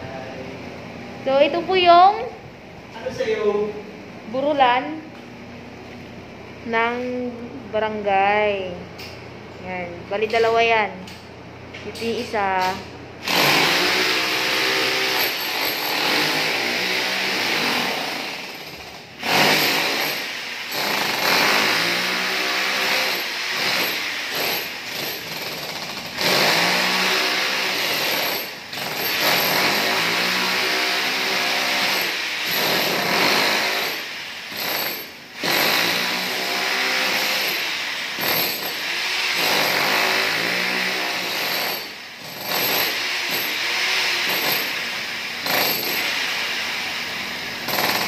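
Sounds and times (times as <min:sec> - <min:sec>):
demolition hammer chiseling tiles: 0:12.7 - 0:46.5, 0:47.6 - 0:48.0.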